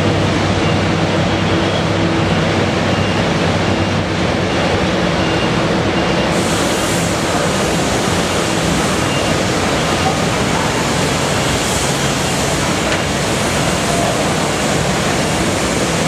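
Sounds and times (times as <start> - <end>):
constant rushing noise: 0.0 - 16.0
excavator diesel engine running: 0.0 - 16.0
high hiss: 6.3 - 16.0.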